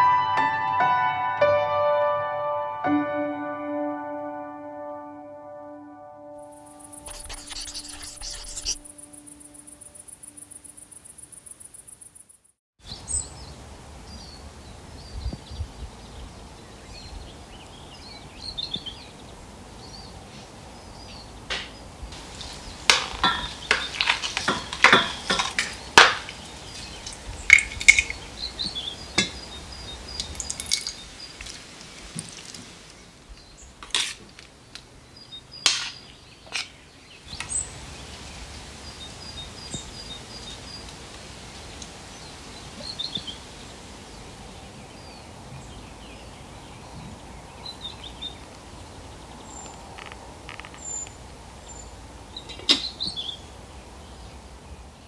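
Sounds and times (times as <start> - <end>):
birds chirping faintly: 6.3 - 33.8
utensils and dishes clinking: 22.9 - 26.3, 30.3 - 31.0.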